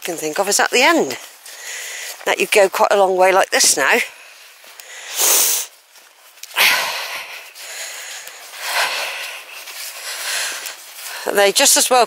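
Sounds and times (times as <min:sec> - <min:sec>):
person breathing hard: 0:01.4 - 0:02.2, 0:04.2 - 0:05.7, 0:06.5 - 0:11.3
faint hiss: 0:04.3 - 0:05.8.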